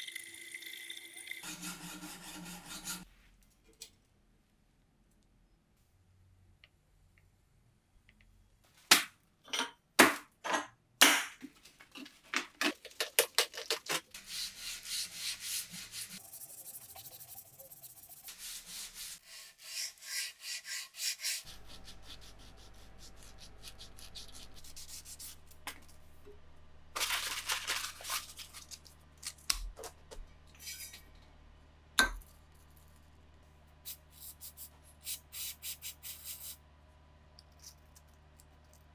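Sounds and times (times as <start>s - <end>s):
blade scraping: 1.4s - 3.1s.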